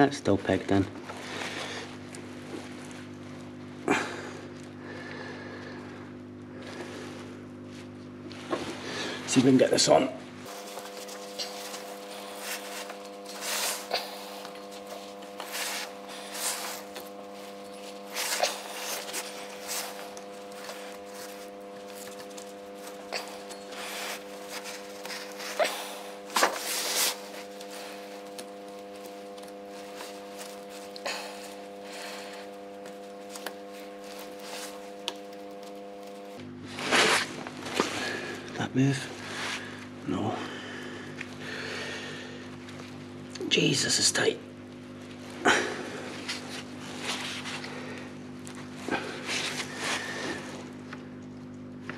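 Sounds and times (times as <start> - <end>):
electrical hum: 0.0 - 51.9
rubber belt rubbing and rustling: 10.4 - 38.0.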